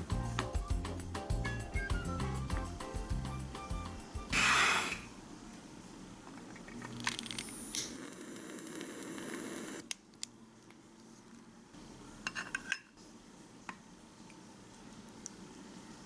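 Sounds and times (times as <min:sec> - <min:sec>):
lighter gas hissing: 0:04.3 - 0:05.1, 0:07.4 - 0:09.8.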